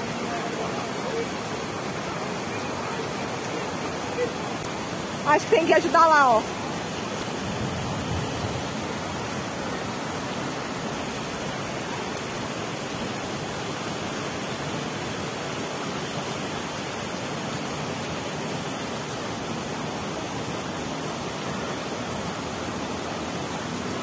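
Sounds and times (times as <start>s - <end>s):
floodwater rushing: 0.0s - 24.0s.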